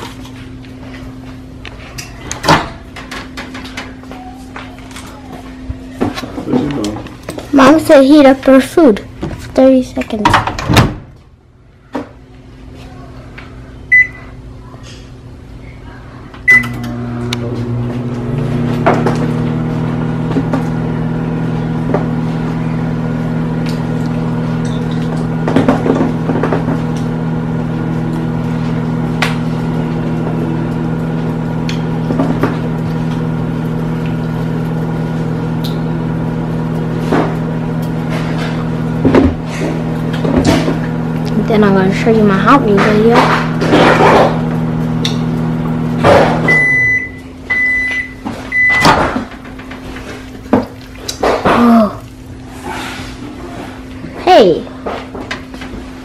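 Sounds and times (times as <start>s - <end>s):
microwave oven humming: 0.0s - 56.0s
short keypad beeps: 13.9s - 14.2s, 16.5s - 16.8s.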